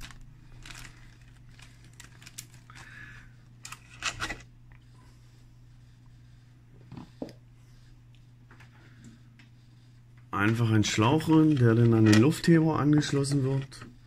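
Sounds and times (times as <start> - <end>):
plastic bottle crinkling: 0.0 - 3.0.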